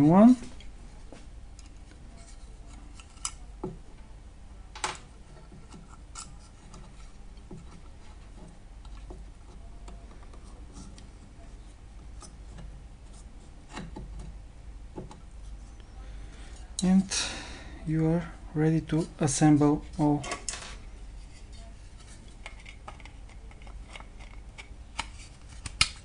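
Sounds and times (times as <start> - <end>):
plastic parts clicking: 22.4 - 26.0.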